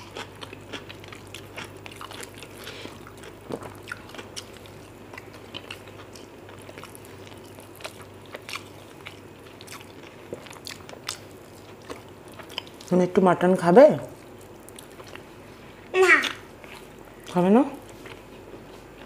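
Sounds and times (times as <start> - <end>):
wet chewing clicks: 0.0 - 13.0.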